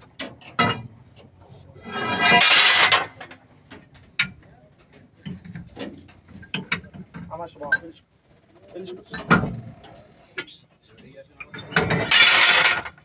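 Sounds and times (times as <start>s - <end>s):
small metal knocks: 0.0s - 1.4s, 2.2s - 8.0s, 9.0s - 13.0s
ringing metal scrape: 1.7s - 3.1s
steel leaf springs clanking: 11.4s - 13.0s.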